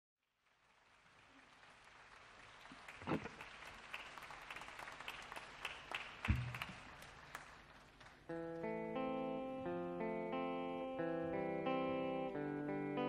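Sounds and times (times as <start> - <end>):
audience applause: 0.3 - 8.6.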